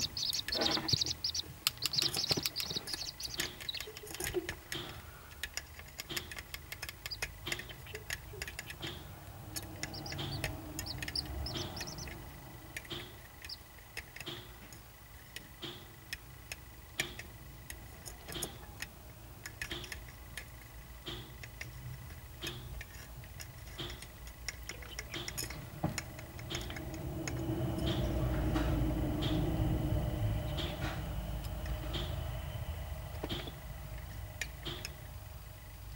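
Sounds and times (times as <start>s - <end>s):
beaks tapping plastic dish: 0.0s - 14.5s, 23.7s - 28.1s
low rumble: 8.6s - 13.4s, 25.6s - 34.6s.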